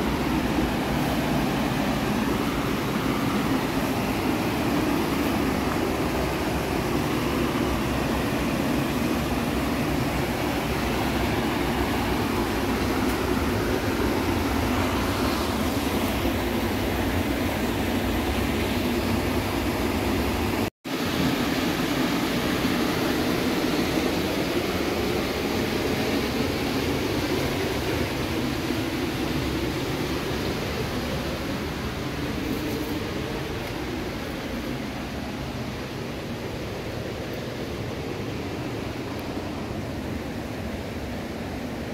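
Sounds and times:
river water rushing over weir: 0:00.0 - 0:41.9.

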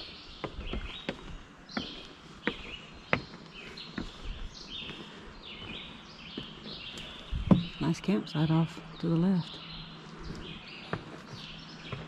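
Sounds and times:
birds calling: 0:00.0 - 0:12.0
footsteps on wooden boards: 0:00.0 - 0:12.0.

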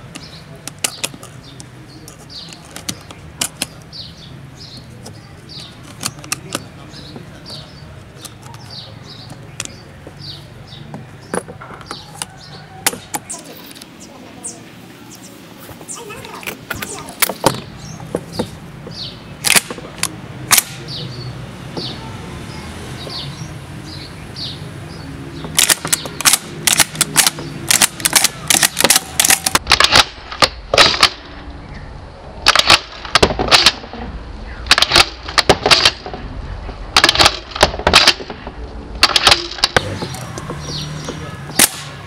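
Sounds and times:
shotgun action clicks and clacks: 0:19.4 - 0:20.8, 0:25.6 - 0:31.2, 0:32.4 - 0:33.8, 0:34.7 - 0:36.1, 0:37.0 - 0:38.4, 0:39.0 - 0:40.3.

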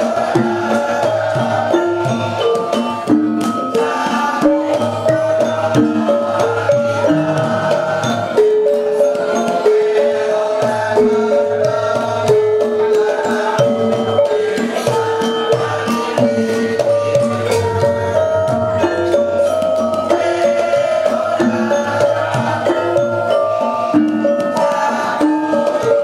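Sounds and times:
gamelan ensemble playing: 0:00.0 - 0:26.0
kettle gongs struck with mallets: 0:13.7 - 0:26.0.

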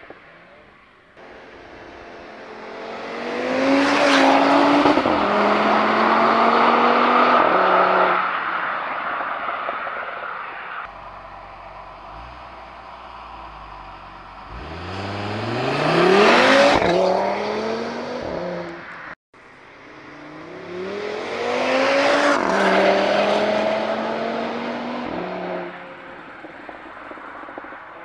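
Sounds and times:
car accelerating past: 0:11.0 - 0:18.9, 0:20.1 - 0:27.7.

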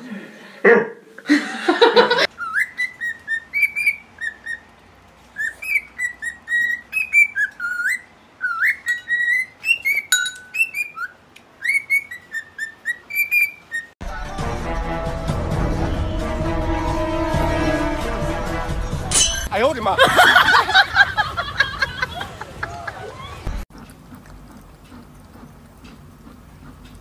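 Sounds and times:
cockatiel whistling: 0:02.4 - 0:04.6, 0:05.4 - 0:13.9
music: 0:14.0 - 0:19.5.

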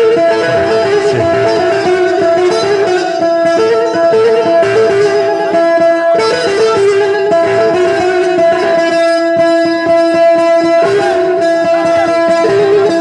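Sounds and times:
plucked lute melody: 0:00.0 - 0:13.0
held drone: 0:00.4 - 0:02.4.

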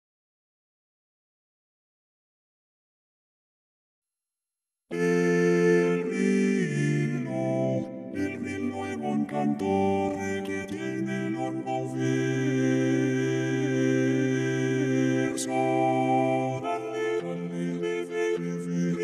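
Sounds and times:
synthesized voices singing chords: 0:04.9 - 0:19.0.

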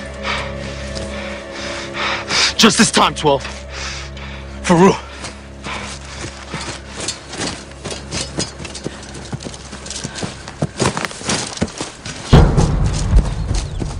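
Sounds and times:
running footsteps on grass: 0:03.4 - 0:13.9
loud low thud: 0:12.3 - 0:13.9.

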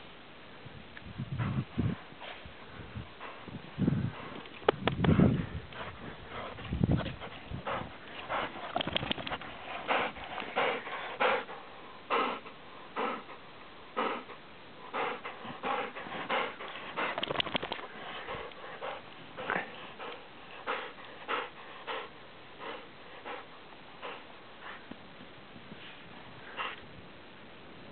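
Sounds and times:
dog breathing hard and sniffing: 0:01.4 - 0:13.4, 0:14.0 - 0:24.9, 0:25.7 - 0:26.9.

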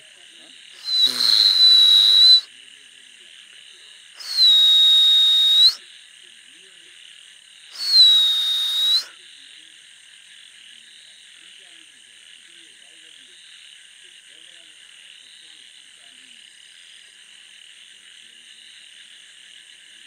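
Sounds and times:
frogs and insects chorus: 0:00.0 - 0:20.0
long loud whistles: 0:00.8 - 0:02.5, 0:04.2 - 0:05.8, 0:07.7 - 0:09.2.

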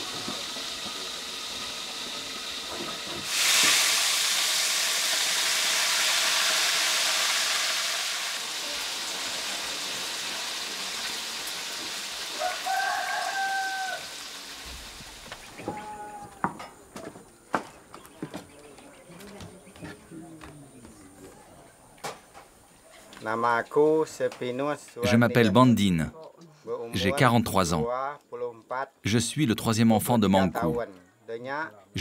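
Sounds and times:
loud even hiss: 0:00.0 - 0:16.2
rooster crowing: 0:12.3 - 0:14.4, 0:15.6 - 0:17.4.

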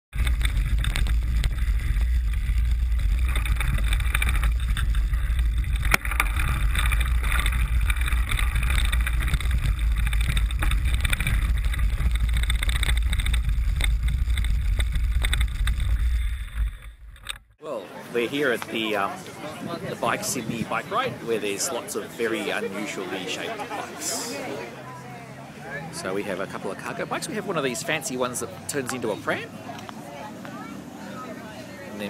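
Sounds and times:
bicycle rumbling over brick paving: 0:00.1 - 0:17.6.

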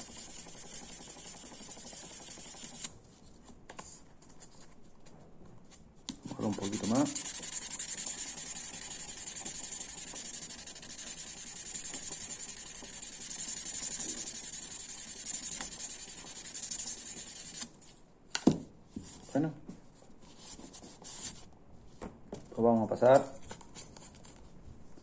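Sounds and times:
sandpaper scratching plastic: 0:00.0 - 0:02.9, 0:06.3 - 0:17.7.

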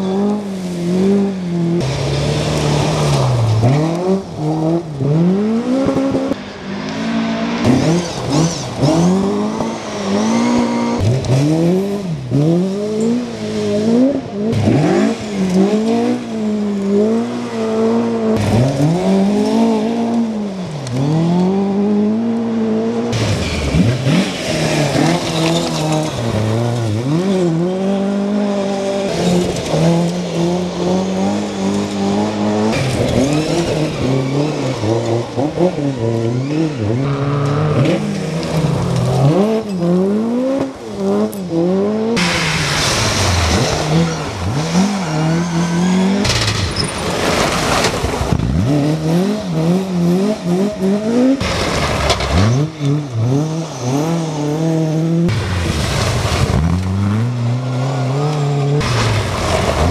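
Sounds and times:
rally car engines revving: 0:00.0 - 0:59.9
tyres rushing on gravel: 0:23.2 - 0:41.2, 0:42.2 - 0:49.1, 0:50.4 - 0:54.6, 0:55.3 - 0:59.9.

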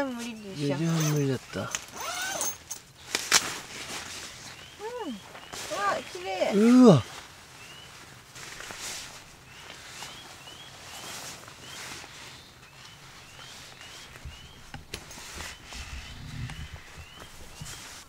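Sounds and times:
bird chirping: 0:00.0 - 0:01.8, 0:04.4 - 0:07.0, 0:07.6 - 0:08.0, 0:09.4 - 0:18.0
footsteps on grass: 0:03.3 - 0:18.0.

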